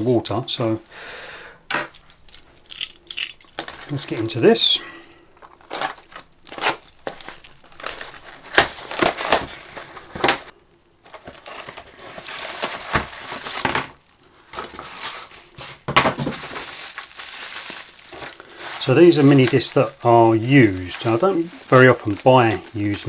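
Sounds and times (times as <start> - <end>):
paper and packing tape tearing: 5.6 - 10.4.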